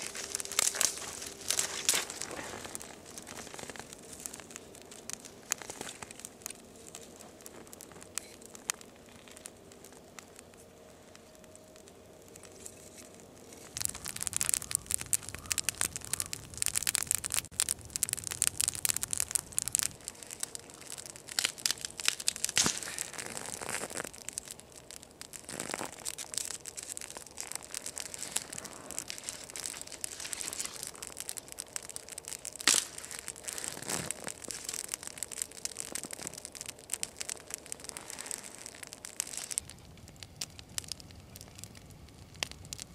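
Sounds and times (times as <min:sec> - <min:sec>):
twigs crackling in a fire: 0:00.0 - 0:42.9.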